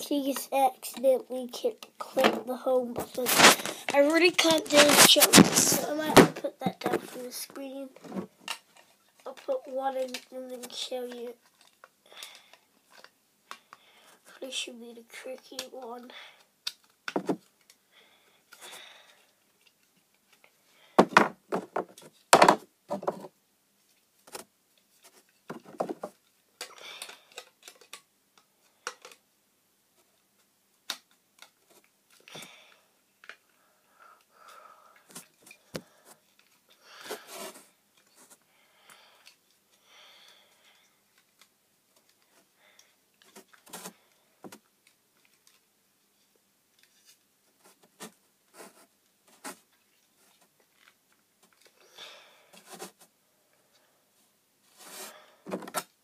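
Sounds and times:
plastic parts clicking and tapping: 16.6s - 17.8s, 25.2s - 29.2s, 55.5s - 56.0s.

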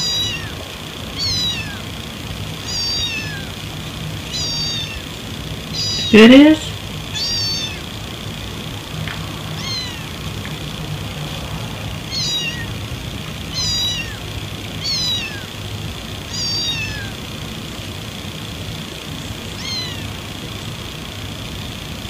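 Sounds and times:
cat meowing: 0.0s - 0.6s, 1.2s - 1.9s, 2.6s - 3.6s, 4.2s - 5.1s, 5.7s - 7.9s, 9.5s - 10.2s, 12.0s - 12.8s, 13.5s - 15.6s, 16.2s - 17.2s, 19.5s - 20.2s
steady low hum: 0.0s - 22.0s.

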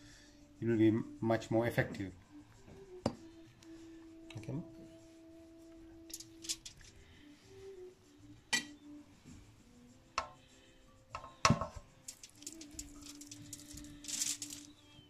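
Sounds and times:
sharp clinks: 12.0s - 14.8s.

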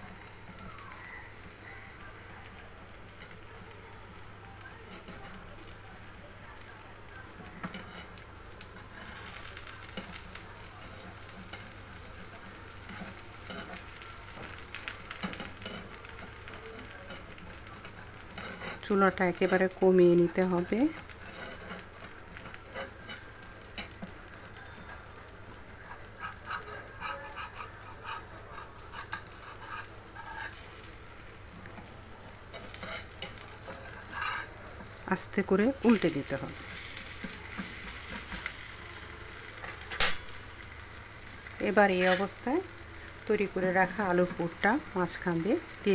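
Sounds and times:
batter sizzling in frying pan: 0.0s - 45.9s
spatula scraping and tapping: 4.7s - 6.7s, 7.4s - 35.0s, 35.8s - 38.8s.

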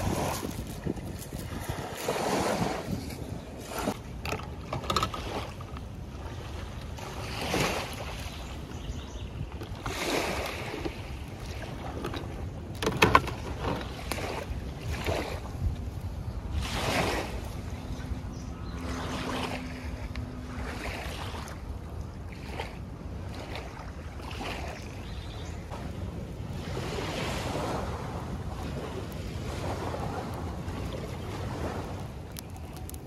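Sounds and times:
wind on microphone: 0.0s - 33.0s
water sloshing: 9.5s - 33.0s.

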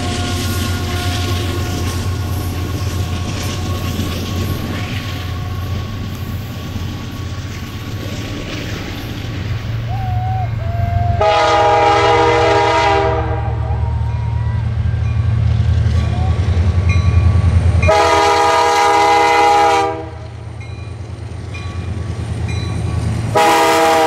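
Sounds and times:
locomotive air horn: 0.0s - 5.9s, 9.9s - 15.1s, 17.9s - 20.3s, 23.3s - 24.0s
freight train rumble: 0.0s - 24.0s.

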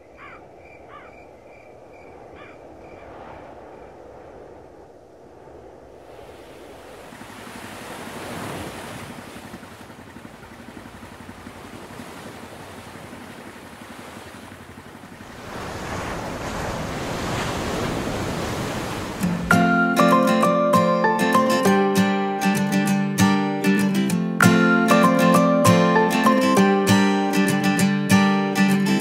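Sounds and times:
waves breaking on a beach: 2.4s - 20.9s.

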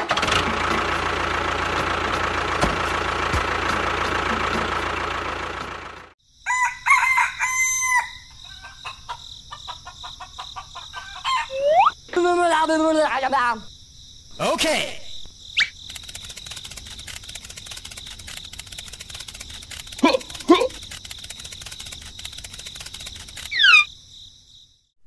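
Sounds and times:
loud mechanical motor noise: 0.0s - 6.1s, 15.9s - 23.6s
crickets trilling: 6.2s - 24.9s
rooster crowing: 6.4s - 11.6s.

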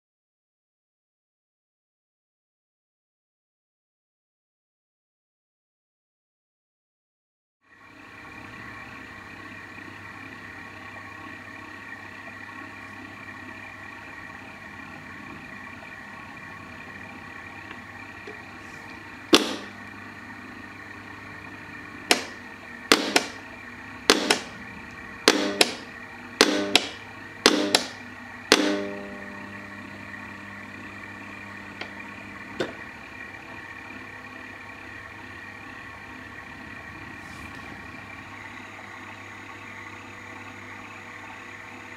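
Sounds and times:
motorised hum and whir: 7.6s - 41.9s
metallic hammer strikes on anvil: 26.4s - 29.1s.

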